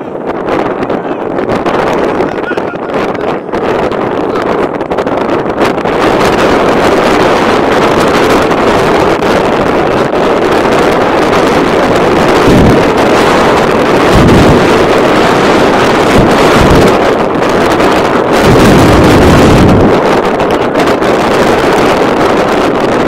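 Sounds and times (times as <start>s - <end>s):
wind buffeting microphone: 0.0s - 23.0s.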